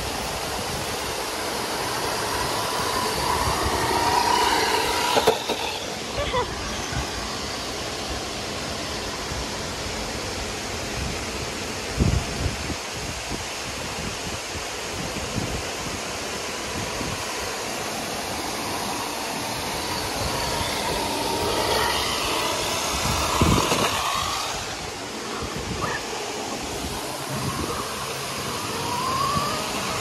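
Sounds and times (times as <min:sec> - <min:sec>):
fountain water rushing: 0:00.0 - 0:05.1, 0:05.8 - 0:30.0
rc car motor whining: 0:00.0 - 0:10.1, 0:16.3 - 0:30.0
tyres hissing on wet paving: 0:00.0 - 0:10.3, 0:14.8 - 0:30.0.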